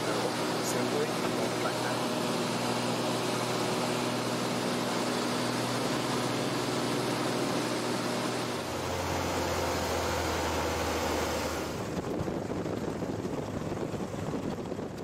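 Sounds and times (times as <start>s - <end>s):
low drone: 0.0s - 12.0s
propeller aircraft engine in cabin: 0.0s - 15.0s.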